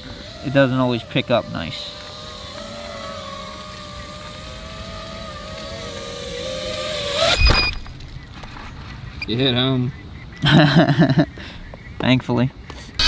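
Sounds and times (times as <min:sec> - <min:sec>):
drone propellers whining: 0:00.0 - 0:10.4
short high beep: 0:07.3 - 0:07.8
loud thump: 0:07.3 - 0:08.0.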